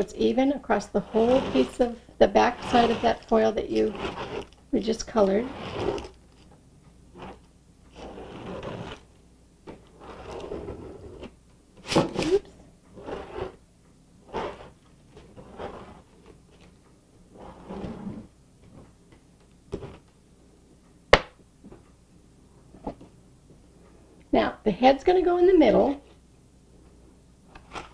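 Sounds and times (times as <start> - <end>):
squeegee scraping glue on foil: 0.9 - 6.2.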